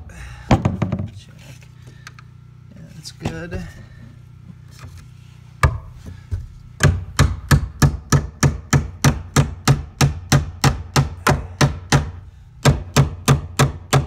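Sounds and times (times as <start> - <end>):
hammer striking nails into wood: 6.8 - 14.0.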